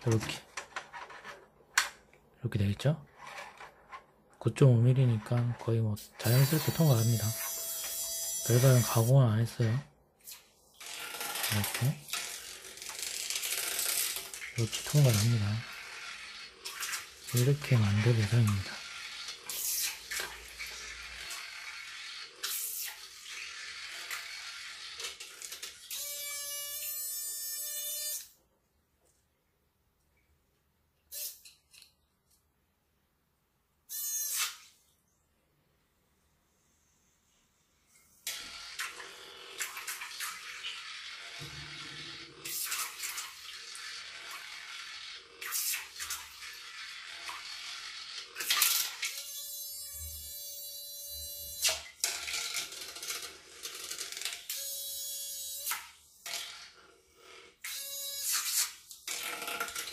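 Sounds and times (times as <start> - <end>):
water splashing in sink: 11.0 - 24.4, 38.4 - 49.1.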